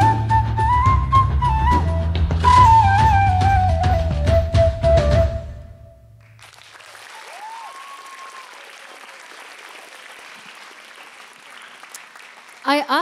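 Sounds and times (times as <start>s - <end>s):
flute note over backing track: 0.0s - 6.1s
audience applause: 6.2s - 13.0s.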